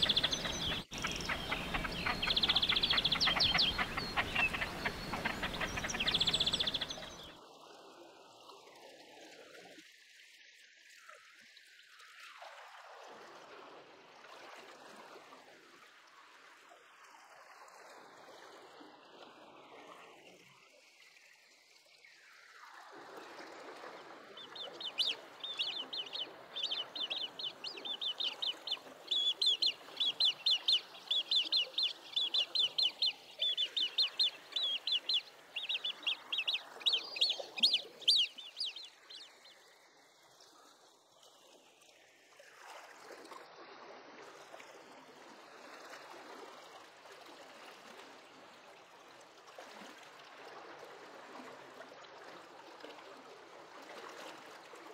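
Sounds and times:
grebe high clucking calls: 0:00.0 - 0:07.3, 0:24.4 - 0:39.5
faint water wash: 0:00.0 - 0:54.9.

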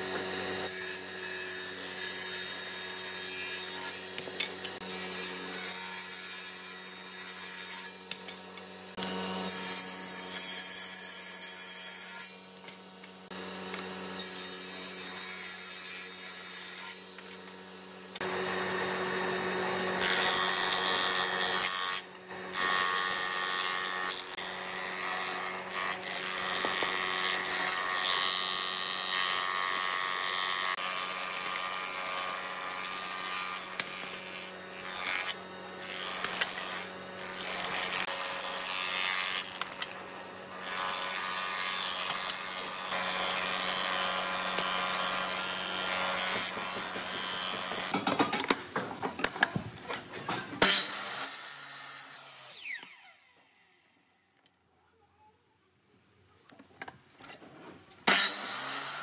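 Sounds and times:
planer cutting boards: 0:00.0 - 0:53.6, 0:56.5 - 0:59.0.

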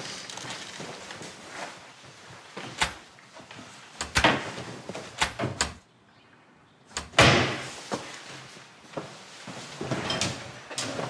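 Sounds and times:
door bang: 0:07.0 - 0:07.7.

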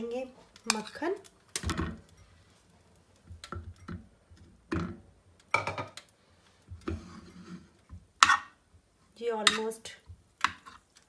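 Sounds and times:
metal spoon scraping frying pan: 0:06.8 - 0:08.6, 0:09.4 - 0:11.0.

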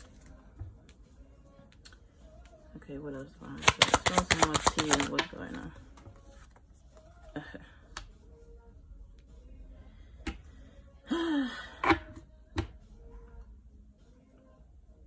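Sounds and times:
cards tapped on table: 0:03.6 - 0:05.3.

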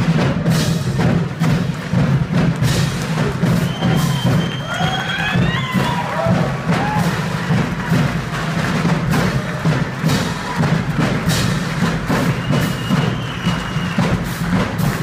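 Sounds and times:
drums keeping steady beat: 0:00.0 - 0:15.0.

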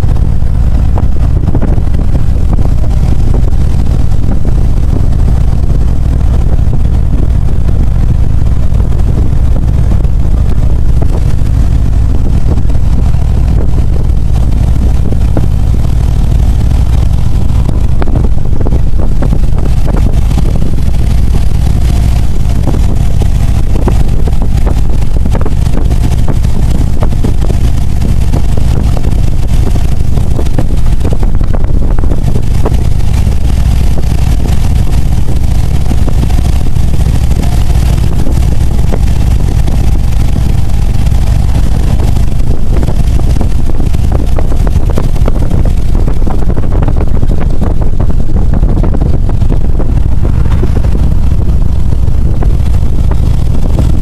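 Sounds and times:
motorcycle engine: 0:00.0 - 0:54.0
wind buffeting microphone: 0:00.0 - 0:54.0.

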